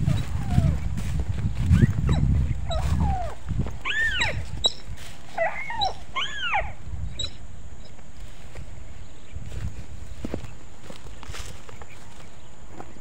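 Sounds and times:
high whining animal cries: 0.0 - 0.8, 1.7 - 7.4.

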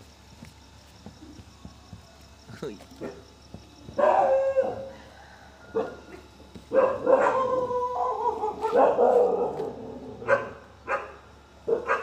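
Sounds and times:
puppy barking: 4.0 - 4.9, 6.7 - 12.0.

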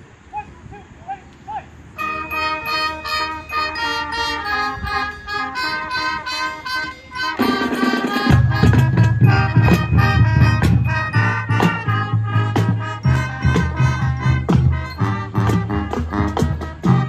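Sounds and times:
marching band playing: 2.0 - 17.0
drum hits: 7.4 - 17.0.

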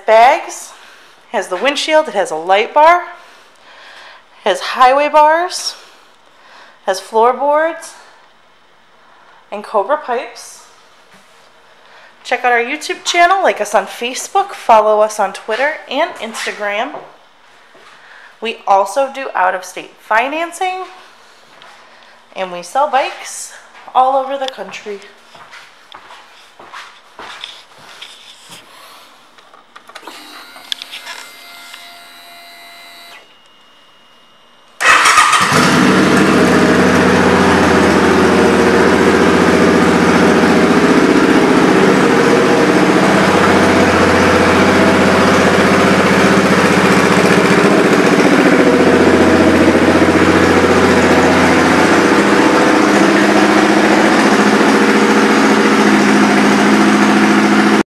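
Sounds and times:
faint hum: 29.8 - 34.8
motorcycle engine starting and idling: 34.8 - 57.8.

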